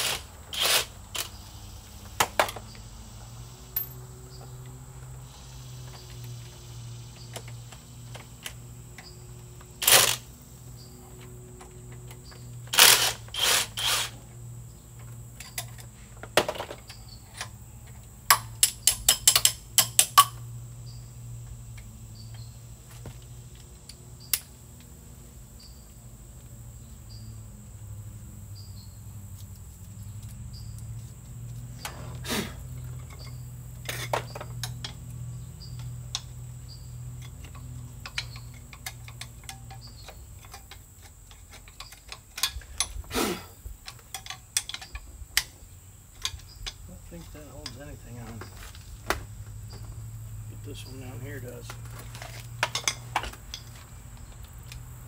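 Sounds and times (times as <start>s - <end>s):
metal tools clicking on engine: 3.7s - 21.0s, 29.3s - 48.9s, 50.6s - 55.0s.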